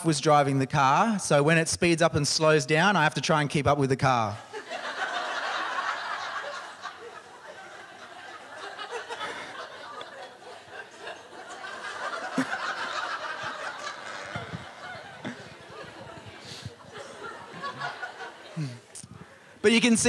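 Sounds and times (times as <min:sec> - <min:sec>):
audience laughing: 0:04.5 - 0:19.0
murmurs: 0:13.6 - 0:16.8.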